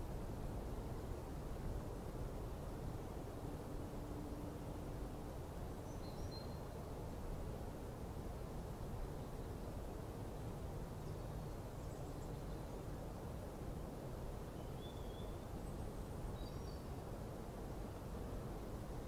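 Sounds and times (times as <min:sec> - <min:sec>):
open-air ambience: 0:00.0 - 0:19.0
faint bird chirps: 0:05.8 - 0:06.7, 0:14.5 - 0:17.0.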